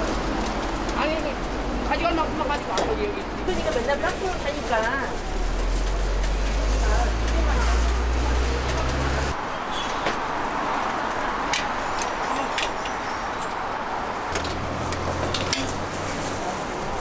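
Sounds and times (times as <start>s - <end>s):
market crowd din: 0.0s - 17.0s
low engine rumble: 3.5s - 9.4s.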